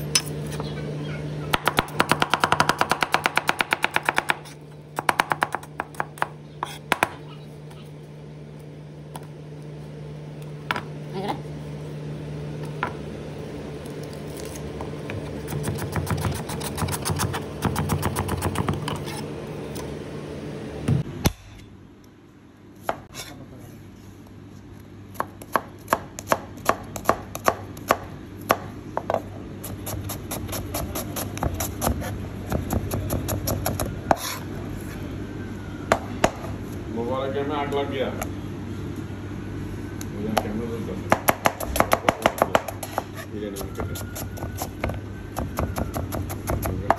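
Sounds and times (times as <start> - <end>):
steady low hum: 0.0 - 46.9
knife chopping on cutting board: 15.0 - 19.1, 41.1 - 43.2.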